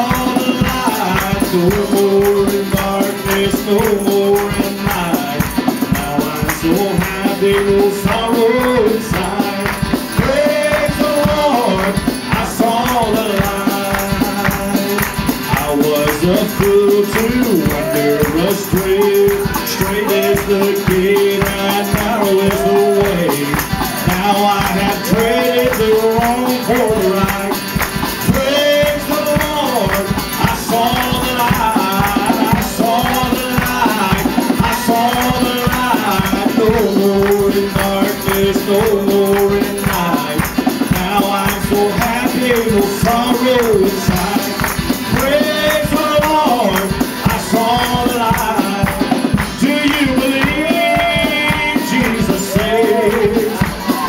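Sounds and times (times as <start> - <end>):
drums keeping a beat: 0.0 - 54.0
strummed acoustic guitar: 0.0 - 54.0.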